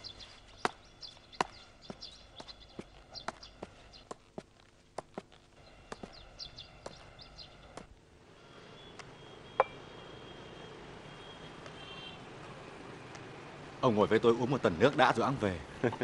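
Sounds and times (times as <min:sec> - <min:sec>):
footsteps walking: 0:00.0 - 0:07.9
small birds chirping: 0:00.0 - 0:12.1.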